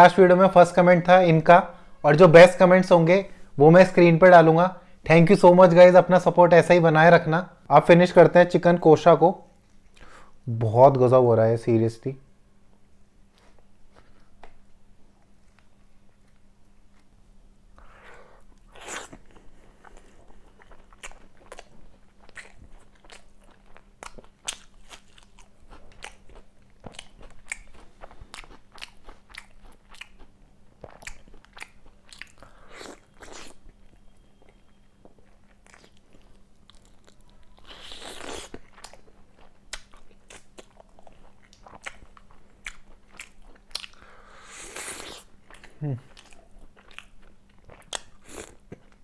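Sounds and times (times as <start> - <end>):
person chewing food: 17.8 - 49.0.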